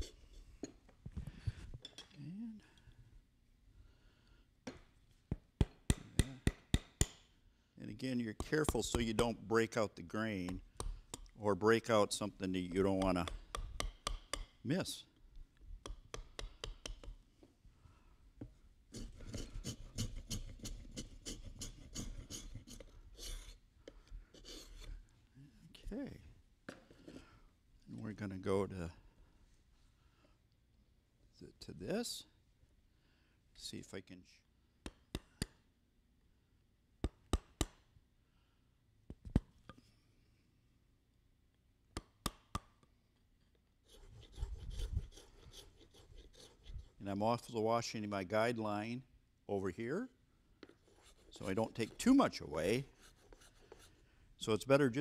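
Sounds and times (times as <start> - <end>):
mallet striking chisel: 5.6 - 7.3, 12.9 - 14.6, 15.8 - 17.2
hand tool scraping wood: 18.9 - 23.6, 43.8 - 47.0, 50.8 - 53.9.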